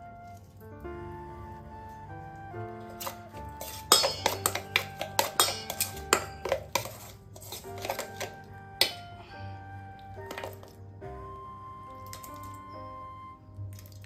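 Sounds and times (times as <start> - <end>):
background music: 0.0 - 14.0
metal spoon clinking in bowl: 3.0 - 9.0.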